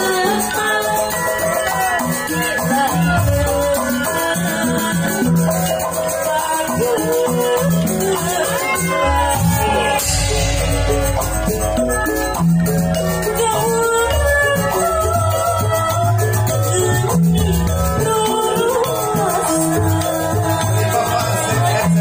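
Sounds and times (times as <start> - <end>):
gamelan music: 0.0 - 22.0
rattling percussion: 0.0 - 22.0
heavy low beats: 9.1 - 15.4.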